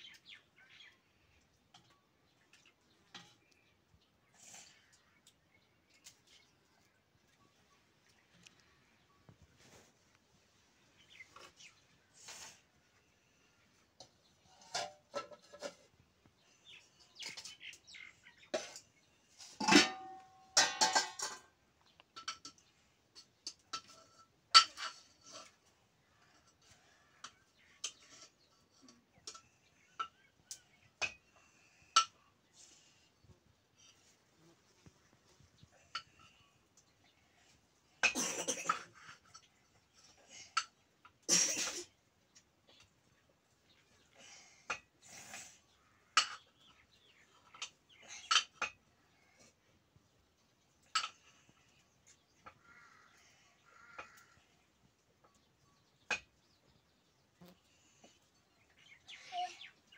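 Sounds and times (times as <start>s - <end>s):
steel pots and lids clattering: 1.6s - 3.7s, 14.0s - 32.8s, 37.9s - 41.9s, 46.2s - 48.9s, 50.8s - 51.5s
metal spoon clinking on pot: 19.6s - 21.5s.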